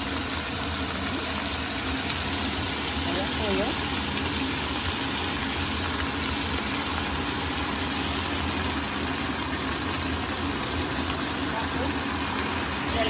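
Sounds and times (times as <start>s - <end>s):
vegetables sizzling in oil: 0.0s - 13.0s.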